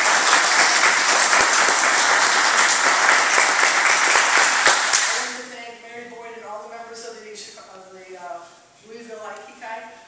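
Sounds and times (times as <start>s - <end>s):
group applauding: 0.0s - 5.3s.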